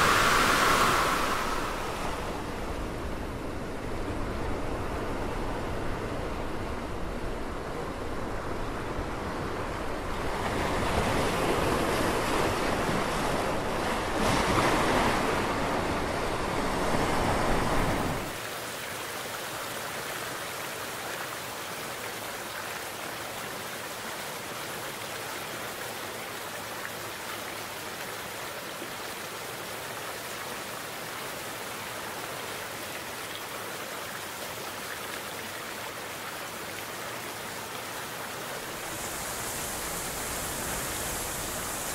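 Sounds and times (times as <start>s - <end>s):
hiss of running water: 0.0s - 2.8s, 36.4s - 41.9s
sea surf washing in: 0.0s - 18.4s, 38.4s - 41.9s.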